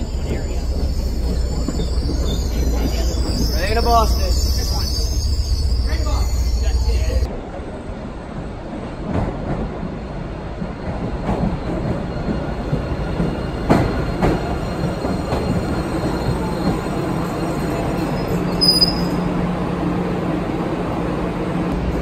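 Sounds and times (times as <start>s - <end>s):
high wheel squeal: 0.0s - 7.3s, 11.9s - 19.3s
subway train rumble: 0.0s - 22.0s.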